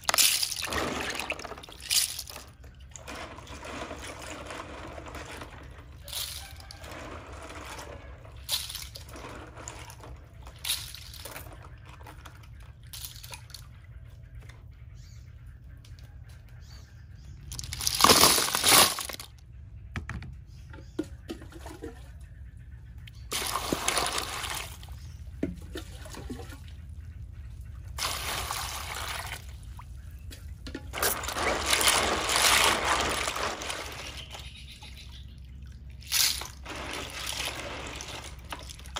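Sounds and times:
clam shells clattering: 0.0s - 7.8s, 8.4s - 11.6s, 17.4s - 19.4s, 30.8s - 34.5s, 36.0s - 38.9s
water splashing and pouring: 0.0s - 13.7s, 23.3s - 26.8s, 27.9s - 38.9s
water sloshing in basin: 0.0s - 14.7s, 17.5s - 19.3s, 20.8s - 38.9s.

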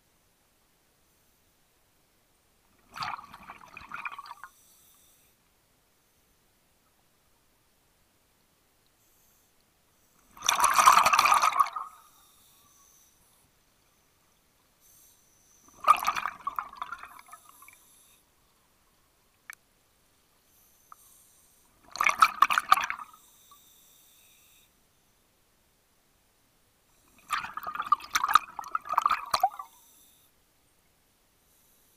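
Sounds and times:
exhaled breath bubbling underwater: 10.4s - 12.0s, 15.8s - 17.8s.

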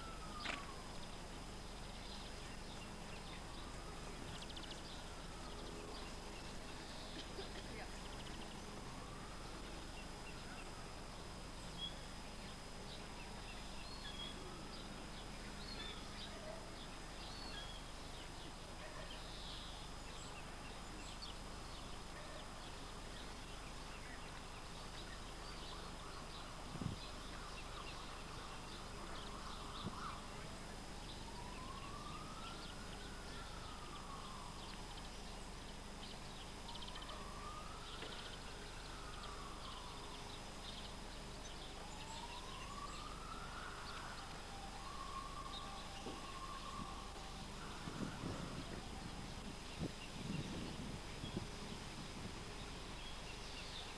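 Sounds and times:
distant bird chirps: 0.0s - 9.1s
faint outdoor hiss: 0.0s - 53.9s.

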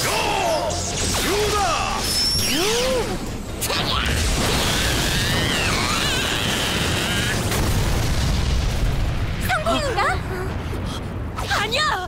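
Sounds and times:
deep explosion rumble: 3.9s - 11.8s.

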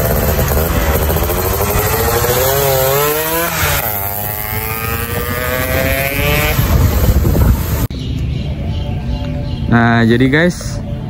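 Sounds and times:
two-stroke engine accelerating: 0.0s - 7.9s
wind noise: 0.0s - 9.8s.

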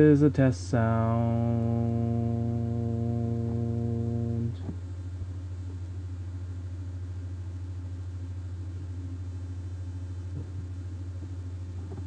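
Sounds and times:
distorted buzzing drone: 0.0s - 6.1s.

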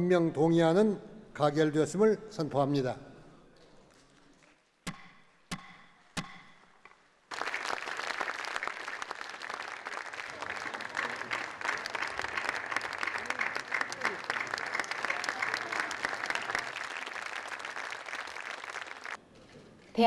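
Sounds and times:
wooden gavel striking: 4.8s - 7.0s
audience applause: 7.3s - 19.2s.

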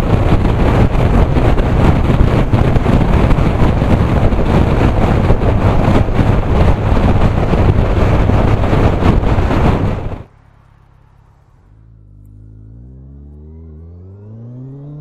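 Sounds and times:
wind rush over microphone: 0.0s - 10.3s
motorcycle engine drone: 0.0s - 15.0s.

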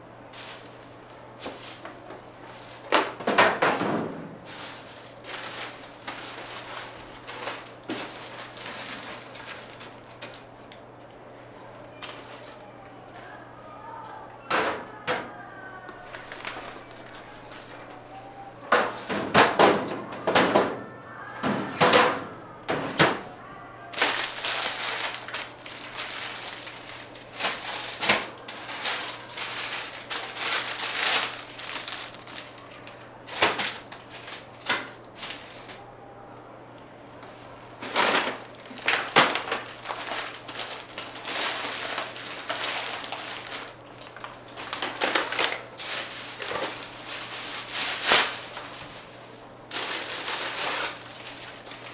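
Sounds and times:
small items clattering: 0.3s - 10.5s, 16.0s - 18.0s, 23.9s - 35.8s, 37.8s - 51.9s.

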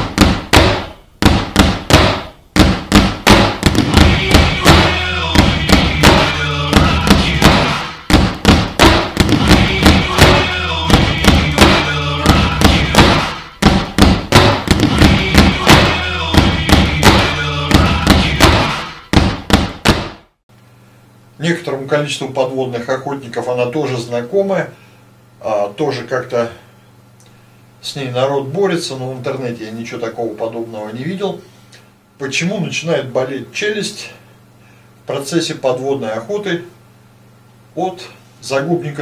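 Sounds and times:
steady bass line: 0.0s - 20.1s
fast heavy drum beat: 0.0s - 20.2s.

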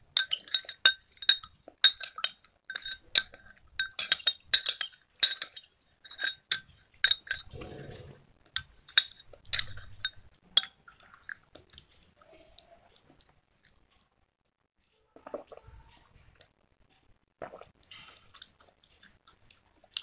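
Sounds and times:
spoon clinking against a glass: 0.1s - 7.6s, 8.6s - 10.7s.

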